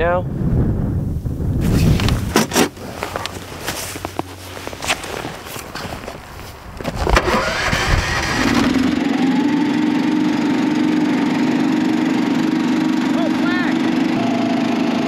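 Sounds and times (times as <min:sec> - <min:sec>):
small gas engine starting and idling: 0:06.9 - 0:15.0.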